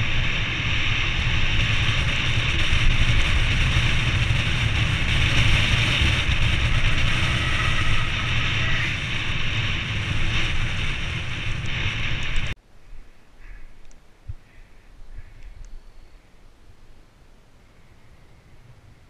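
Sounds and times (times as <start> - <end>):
wind buffeting a microphone: 0.0 - 12.6.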